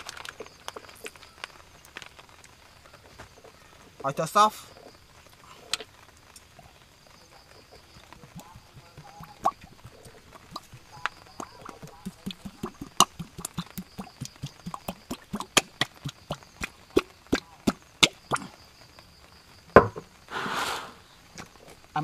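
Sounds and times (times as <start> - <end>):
loud thump: 19.8 - 20.9.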